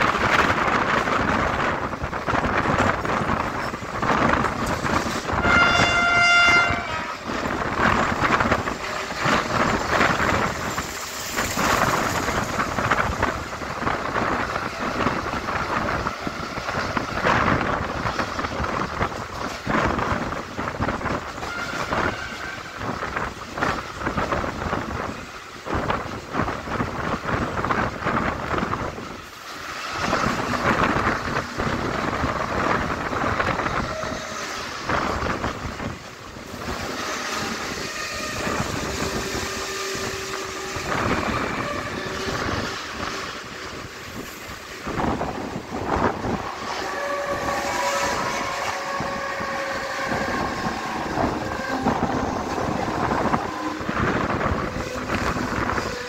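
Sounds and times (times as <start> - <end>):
train wheels rumbling on track: 0.0 - 56.0
wind buffeting microphone: 0.0 - 56.0
train horn: 5.3 - 10.7, 21.4 - 23.1, 33.3 - 35.3, 37.0 - 43.5, 45.9 - 56.0.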